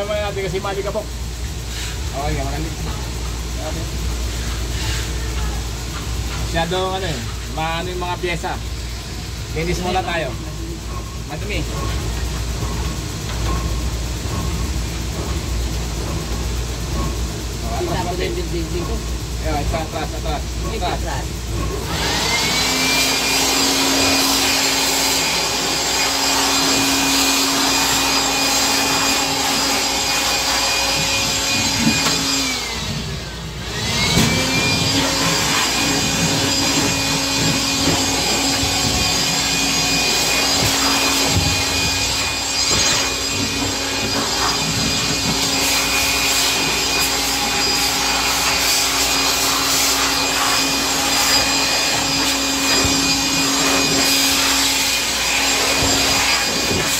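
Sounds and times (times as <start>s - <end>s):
electric blower motor whine: 17.7s - 56.9s.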